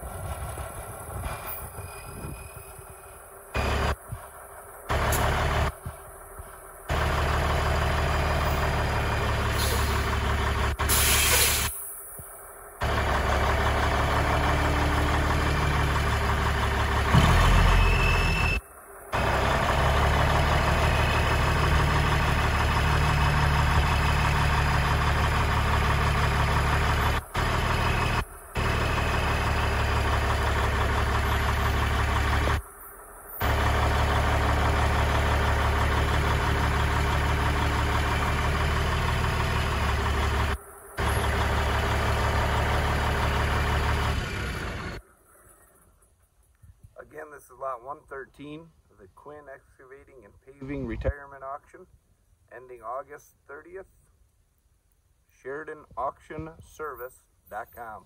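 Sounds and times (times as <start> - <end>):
diesel engine idling: 0.0 - 46.2.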